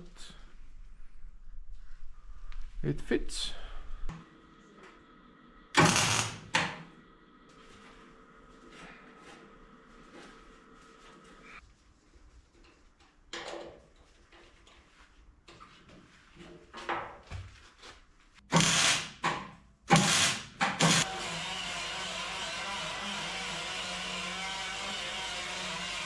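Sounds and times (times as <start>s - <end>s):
handheld power tool running: 5.8s - 6.4s, 18.6s - 19.1s, 19.9s - 26.0s.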